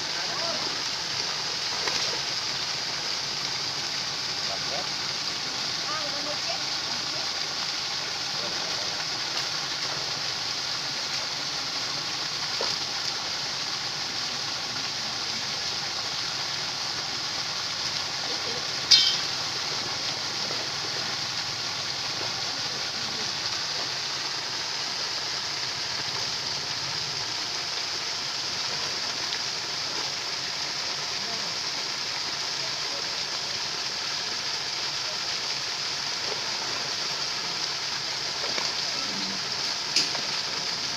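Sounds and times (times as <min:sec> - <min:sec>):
sharp splash: 0:18.4 - 0:19.5.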